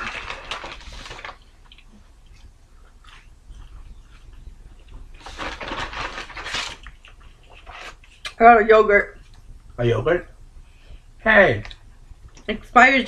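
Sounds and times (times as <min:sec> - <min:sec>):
paper bag rustling: 0:00.0 - 0:01.7, 0:05.0 - 0:06.9.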